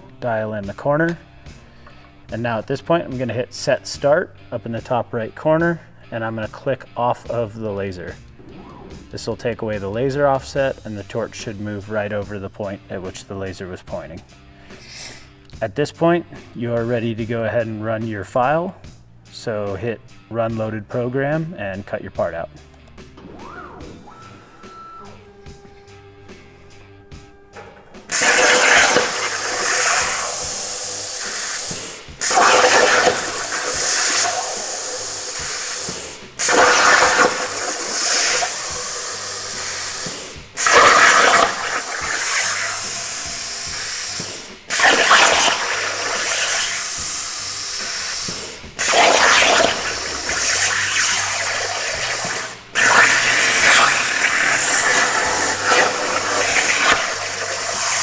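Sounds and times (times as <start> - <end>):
plasma torch hissing: 26.3 - 58.0.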